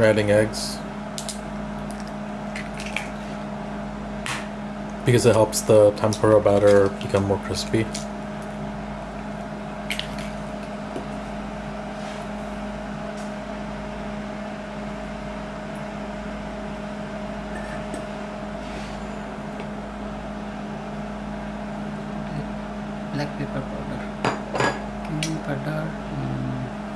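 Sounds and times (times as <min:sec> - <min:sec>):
microwave oven humming: 0:00.0 - 0:26.9.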